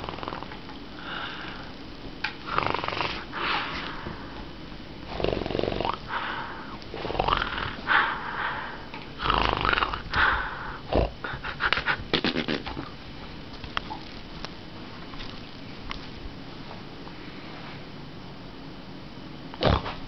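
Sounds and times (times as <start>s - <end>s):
person growling and snorting: 2.4s - 3.9s, 5.0s - 12.9s, 19.6s - 20.0s.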